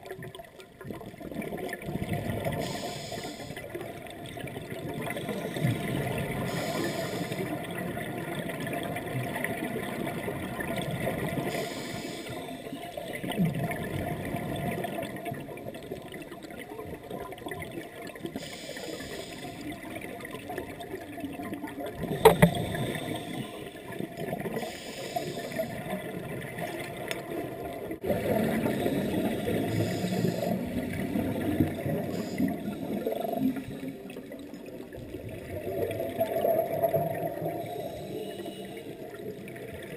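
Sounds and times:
bubbles burbling: 0:00.0 - 0:02.7, 0:03.7 - 0:06.6, 0:07.4 - 0:11.6, 0:12.9 - 0:18.4, 0:19.6 - 0:24.7, 0:25.4 - 0:37.9
scuba regulator breaths hissing: 0:02.6 - 0:03.7, 0:06.4 - 0:07.7, 0:11.4 - 0:13.0, 0:18.4 - 0:19.7, 0:22.2 - 0:23.9, 0:24.5 - 0:25.9, 0:28.6 - 0:31.1, 0:31.9 - 0:34.1, 0:37.5 - 0:39.0.

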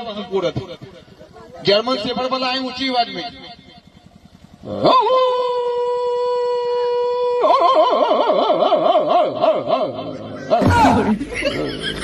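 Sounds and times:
man imitating dog howling: 0:04.6 - 0:11.1.

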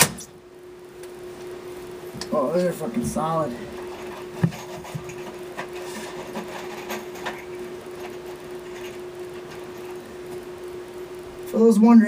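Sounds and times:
steady hum: 0:00.0 - 0:12.0
light clicks and scrapes: 0:03.7 - 0:10.0.

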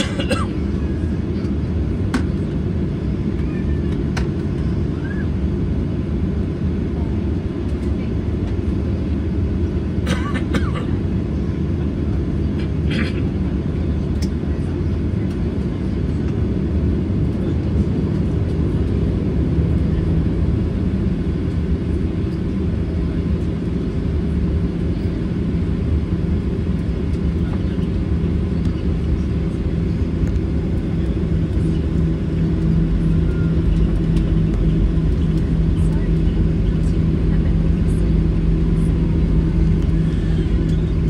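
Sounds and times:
airplane cabin engine drone: 0:00.0 - 0:41.0
hum: 0:16.1 - 0:41.0.

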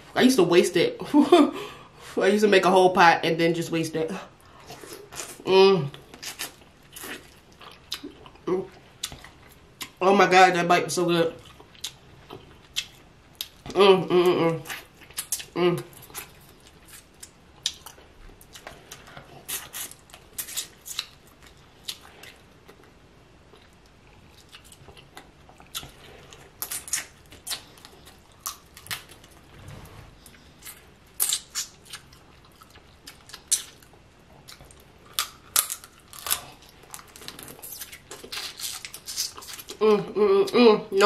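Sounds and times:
wet chewing and smacking: 0:06.0 - 0:10.0, 0:11.4 - 0:13.8, 0:14.6 - 0:29.5, 0:30.2 - 0:39.8.

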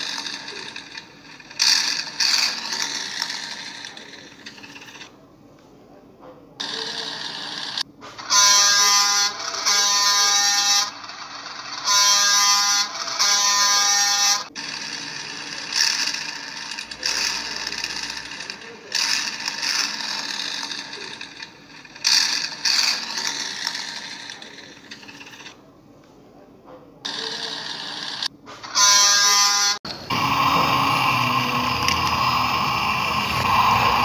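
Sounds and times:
buzzing electronic horn tone: 0:08.3 - 0:10.9, 0:11.8 - 0:14.5, 0:28.8 - 0:32.4.

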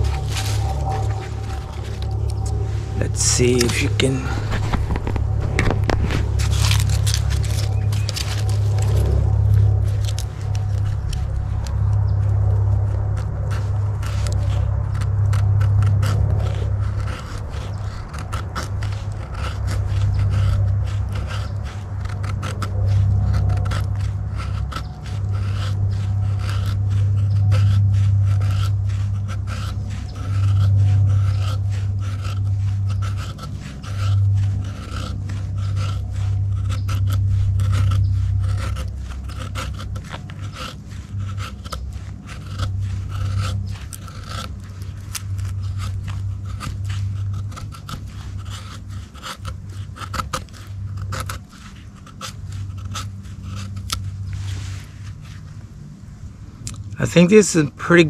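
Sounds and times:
knife scraping wood: 0:00.0 - 0:58.0
steady low hum: 0:00.0 - 0:58.0.

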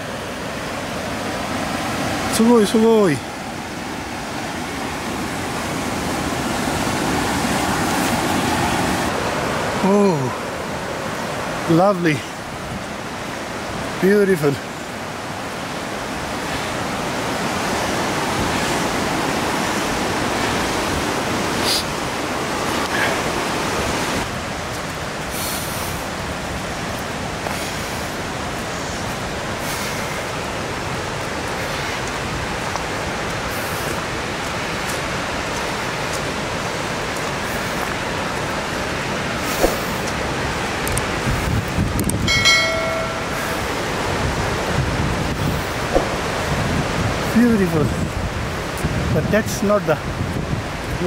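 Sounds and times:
stream flowing over rocks: 0:00.0 - 0:51.0.

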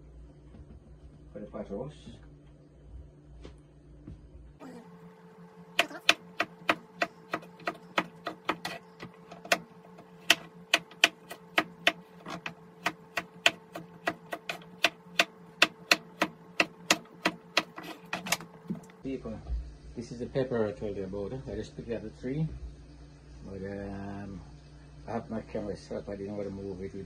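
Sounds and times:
knife chopping on wooden board: 0:05.8 - 0:18.9.

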